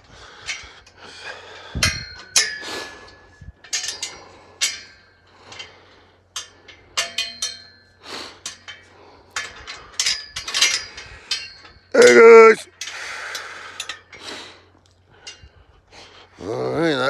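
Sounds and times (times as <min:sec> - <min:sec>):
metal gate clinking and knocking: 0:01.8 - 0:02.9, 0:03.6 - 0:05.7, 0:06.4 - 0:13.0.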